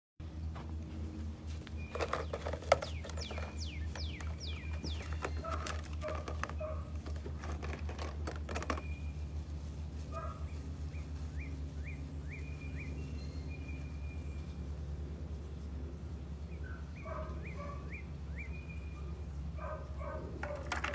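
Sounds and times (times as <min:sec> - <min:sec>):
steady low hum: 0:00.2 - 0:20.5
small birds chirping: 0:01.5 - 0:20.6
sharp clicks and knocks: 0:01.8 - 0:09.0, 0:20.4 - 0:20.9.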